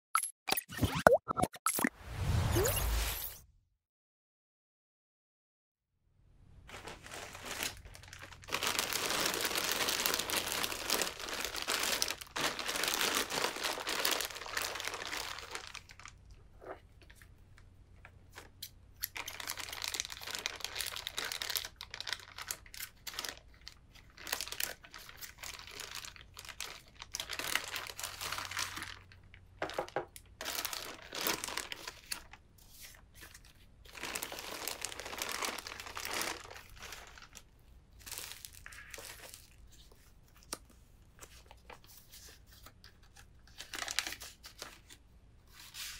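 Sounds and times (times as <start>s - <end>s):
plastic bag crinkling: 6.6s - 16.2s, 19.2s - 32.4s, 33.9s - 39.7s.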